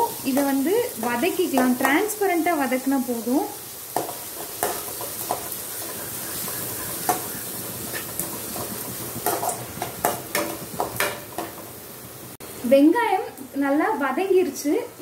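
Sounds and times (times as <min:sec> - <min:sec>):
onions sizzling in hot oil: 0:00.0 - 0:15.0
metal spoon scraping pan: 0:04.0 - 0:11.5.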